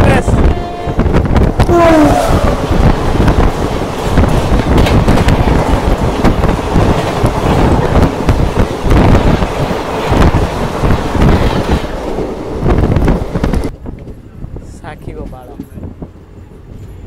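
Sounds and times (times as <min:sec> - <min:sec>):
train wheels rumbling on rails: 0:00.0 - 0:17.0
wind on microphone: 0:00.0 - 0:17.0
clacks of wheels on rails: 0:02.6 - 0:17.0.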